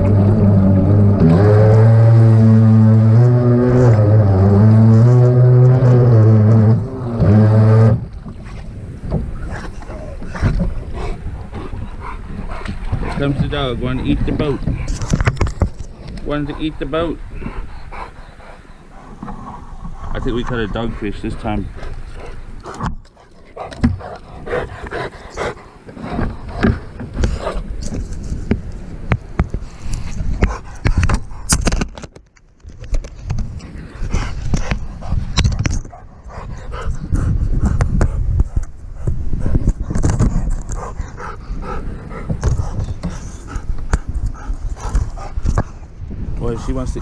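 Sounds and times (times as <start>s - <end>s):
dog panting: 10.9s - 14.9s, 16.3s - 27.6s, 35.9s - 45.8s, 46.4s - 47.0s.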